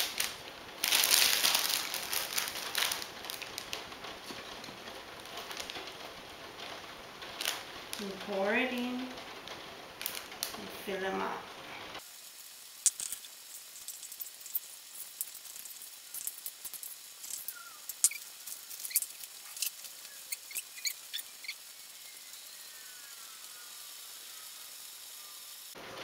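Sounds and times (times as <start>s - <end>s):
plastic bag crackling: 0.0s - 23.6s
short high squeaks: 13.2s - 24.4s.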